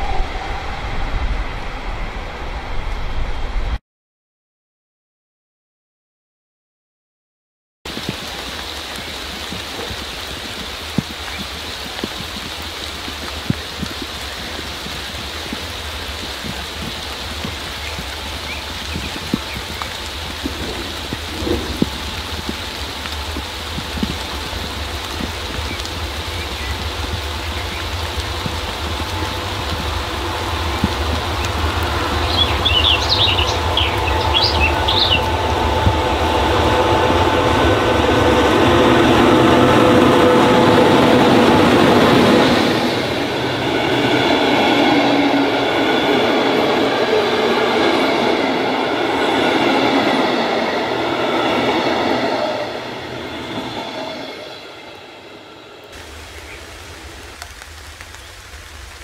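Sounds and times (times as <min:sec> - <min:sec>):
low rumble: 0:00.0 - 0:03.8
raindrops ticking close by: 0:07.9 - 0:36.6, 0:56.0 - 0:59.0
steady rain: 0:07.9 - 0:54.2, 0:55.4 - 0:59.0
electric locomotives humming: 0:08.3 - 0:58.2
bird chirping: 0:32.2 - 0:35.3.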